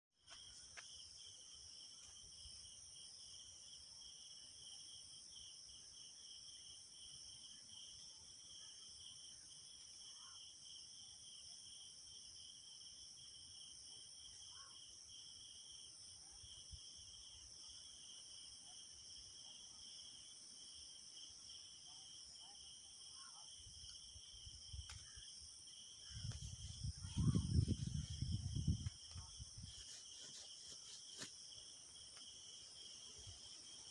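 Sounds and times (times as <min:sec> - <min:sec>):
insect chorus buzzing: 0:16.5 - 0:33.9.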